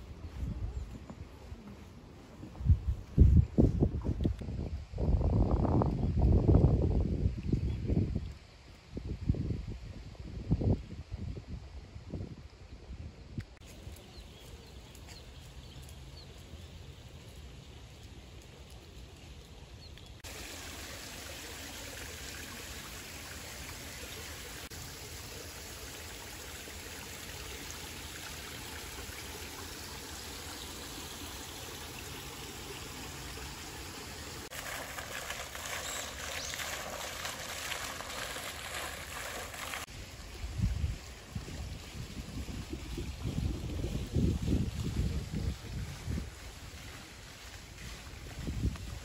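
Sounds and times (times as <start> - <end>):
fountain spraying: 13.7 - 49.0
water spilling over a weir: 20.2 - 49.0.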